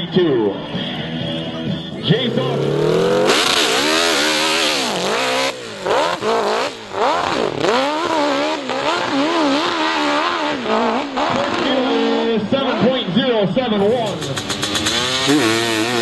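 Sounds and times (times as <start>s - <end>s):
dirt bike engine revving: 1.9s - 16.0s
loud rushing noise: 2.0s - 7.8s.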